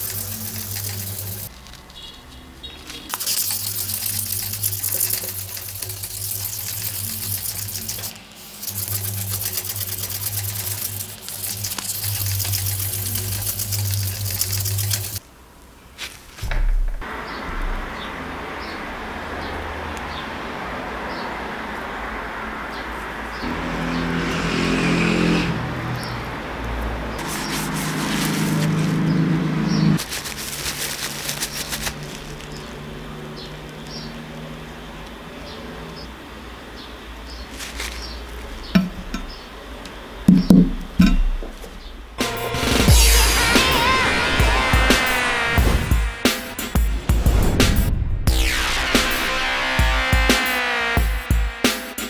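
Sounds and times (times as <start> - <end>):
sandpaper scratching: 0.0 - 1.8, 2.8 - 15.2, 27.2 - 29.1, 30.0 - 32.8, 37.5 - 38.6, 42.2 - 50.6
vehicle engine humming: 0.0 - 15.2, 16.4 - 51.7
paper towel crackling: 2.8 - 15.2, 15.8 - 16.5, 27.2 - 29.1, 30.0 - 32.9, 37.4 - 38.6.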